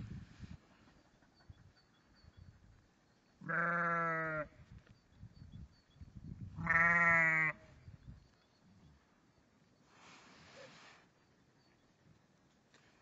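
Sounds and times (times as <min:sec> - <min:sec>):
sheep bleating: 0:03.5 - 0:04.5, 0:06.6 - 0:07.6.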